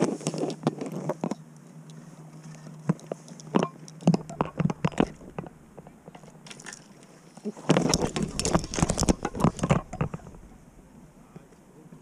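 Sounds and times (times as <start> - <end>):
fishing gear clicks and knocks: 2.4 - 10.6
dense clatter with low rumble: 3.6 - 7.0, 7.6 - 11.7.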